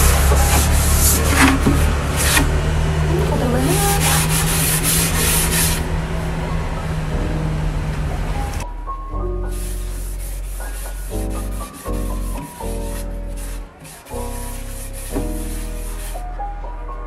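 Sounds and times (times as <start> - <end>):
paper rubbing on table: 3.7 - 5.8, 9.5 - 16.2.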